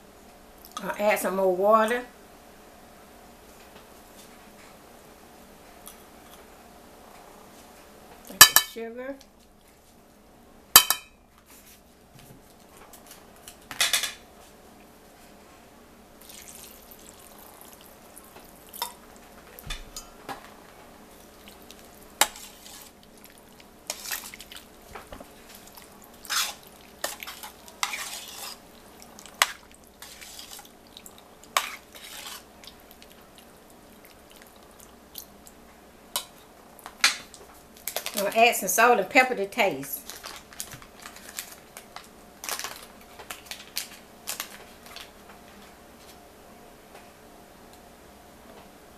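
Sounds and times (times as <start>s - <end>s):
metal spoon stirring in pot: 21.4s - 23.1s, 23.9s - 24.6s, 25.5s - 32.5s.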